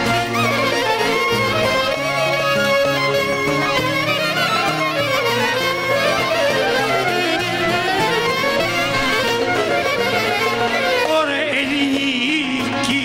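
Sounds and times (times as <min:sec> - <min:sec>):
clarinet: 0:00.0 - 0:12.9
folk band playing dance melody: 0:00.0 - 0:13.0
violin: 0:00.0 - 0:13.0
person singing: 0:04.3 - 0:13.0.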